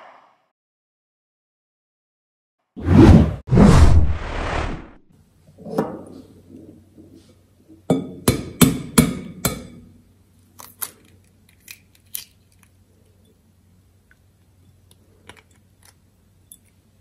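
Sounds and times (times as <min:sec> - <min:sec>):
whoosh: 0:02.8 - 0:05.0.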